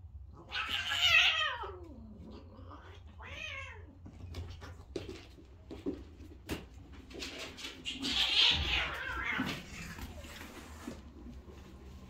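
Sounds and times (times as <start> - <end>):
cat meowing: 0.4 - 1.9, 2.7 - 3.9, 7.9 - 10.2.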